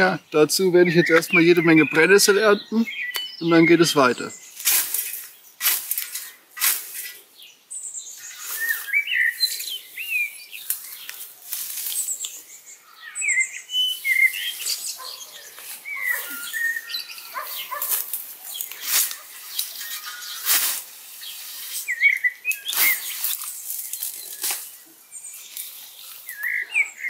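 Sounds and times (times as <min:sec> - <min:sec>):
birds chirping and whistling: 0:00.0 - 0:27.0
scythe swishing through nettles: 0:04.5 - 0:07.2, 0:08.3 - 0:09.8, 0:10.6 - 0:12.4, 0:17.6 - 0:26.4.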